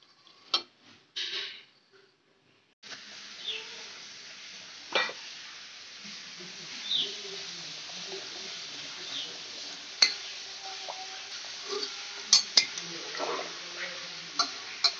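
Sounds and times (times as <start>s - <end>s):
steady hiss: 2.8s - 14.9s
spoon clinking on metal pot: 11.8s - 12.8s.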